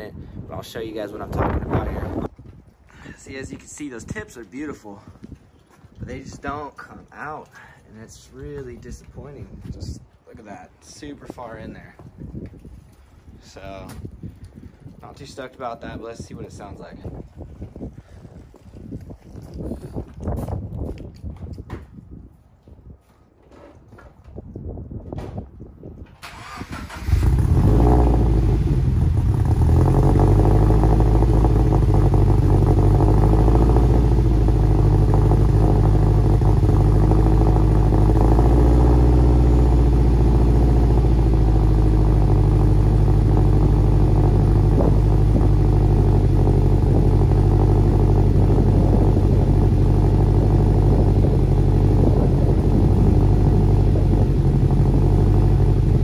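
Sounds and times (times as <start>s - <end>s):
car engine starting and idling: 26.2s - 56.0s.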